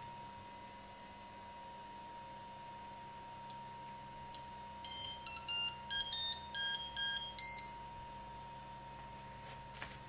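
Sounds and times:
electronic beep startup tune: 0:04.8 - 0:07.8.

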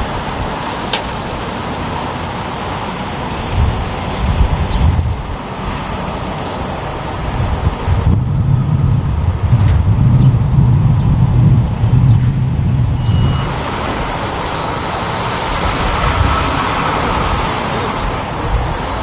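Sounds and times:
road noise: 0:00.0 - 0:19.0
truck diesel engine rumbling: 0:00.0 - 0:19.0
brief high squeak: 0:13.0 - 0:13.6.

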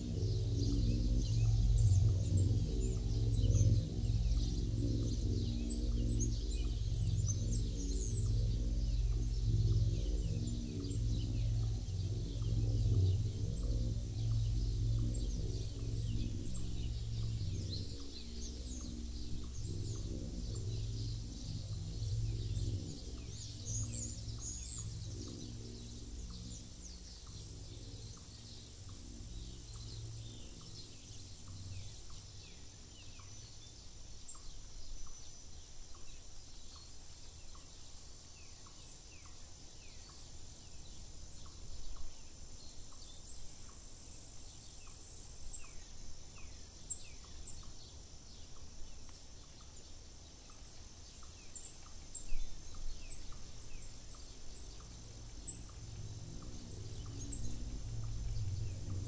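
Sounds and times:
birds singing and chirping: 0:00.0 - 0:59.0.

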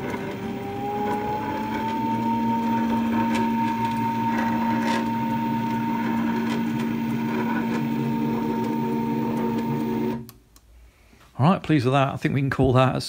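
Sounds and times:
ball screw running hum: 0:00.0 - 0:10.2
stepper motor whine: 0:00.0 - 0:10.3.

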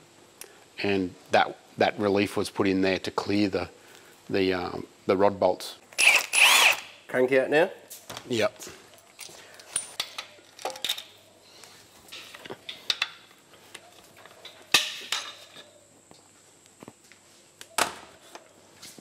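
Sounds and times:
metal tools clinking and knocking: 0:09.2 - 0:11.2, 0:13.8 - 0:15.7.

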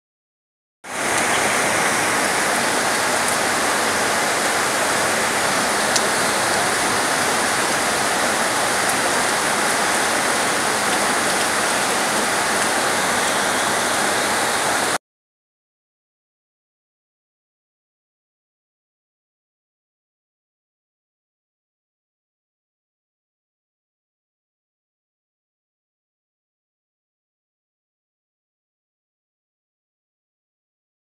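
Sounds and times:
heavy rain hissing: 0:00.9 - 0:15.0.

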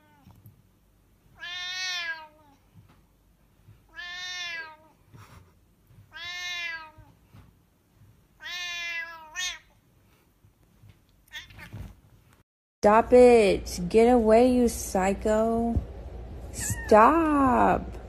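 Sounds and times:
cat meowing: 0:00.0 - 0:00.4, 0:01.4 - 0:02.6, 0:03.9 - 0:05.0, 0:06.1 - 0:07.2, 0:08.4 - 0:09.7, 0:11.3 - 0:11.8.

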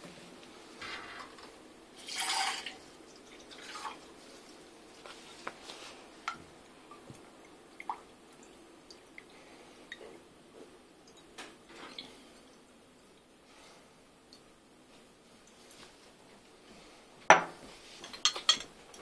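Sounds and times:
liquid pouring and splashing: 0:02.0 - 0:04.6.

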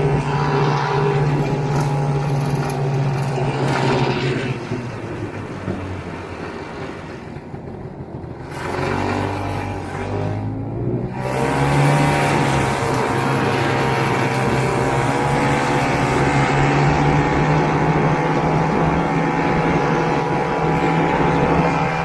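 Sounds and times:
snowmobile two-stroke engine revving: 0:07.6 - 0:22.0.

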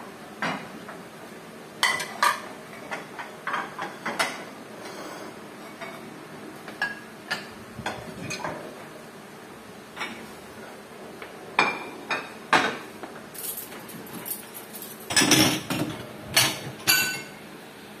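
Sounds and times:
dishes and cutlery clinking: 0:01.8 - 0:06.1, 0:13.4 - 0:17.4
dishes clattering: 0:01.8 - 0:06.1, 0:11.6 - 0:17.4.

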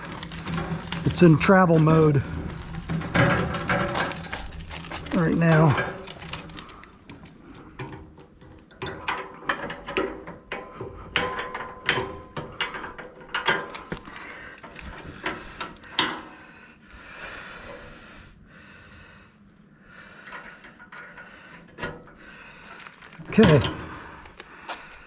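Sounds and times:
steel clinks and clanks: 0:00.0 - 0:06.9, 0:07.8 - 0:16.4, 0:20.2 - 0:24.5.

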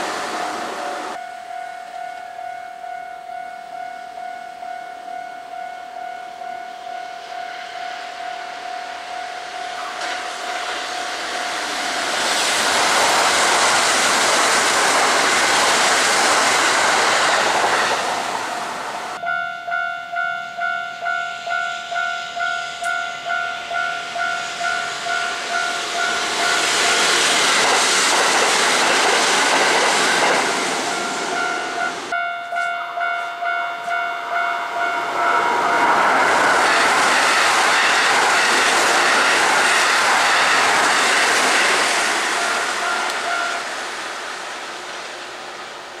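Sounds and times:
electric trains passing: 0:00.0 - 0:02.4, 0:05.0 - 0:46.0
level crossing bell ringing: 0:19.2 - 0:26.6, 0:30.9 - 0:35.4.

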